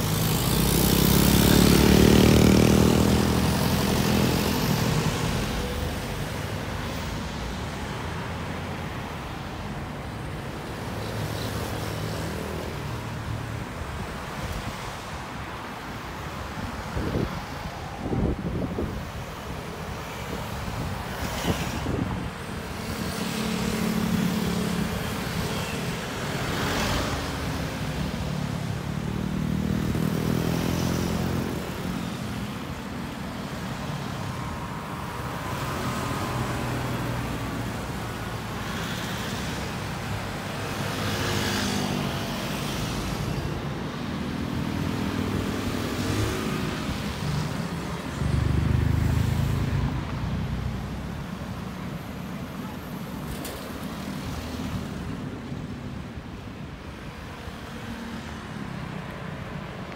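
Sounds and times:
cars driving past: 0.0 - 8.0, 20.1 - 59.9.

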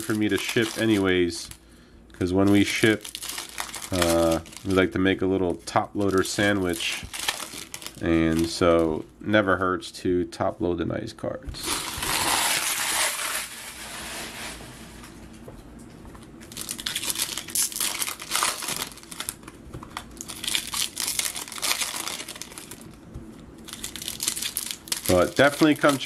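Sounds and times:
foil wrappers crinkling and tearing: 0.0 - 1.6, 2.3 - 9.0, 11.6 - 14.6, 16.4 - 23.0, 23.6 - 26.0.

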